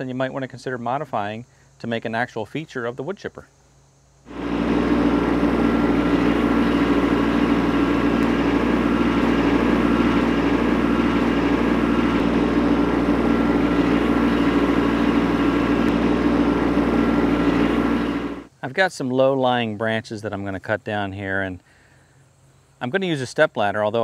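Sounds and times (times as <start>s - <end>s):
tractor diesel engine running: 4.3s - 18.5s.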